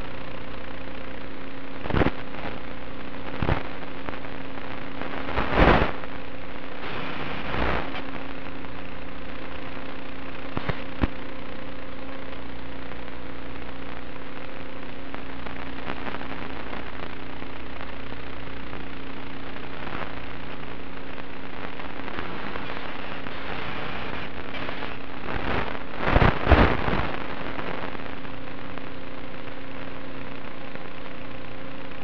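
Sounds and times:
radio static hiss and crackling: 0.0s - 32.0s
steady hum: 0.0s - 32.0s.

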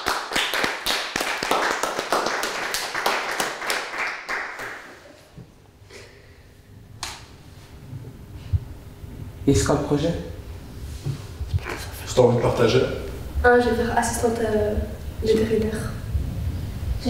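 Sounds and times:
small group applauding: 0.0s - 5.2s.

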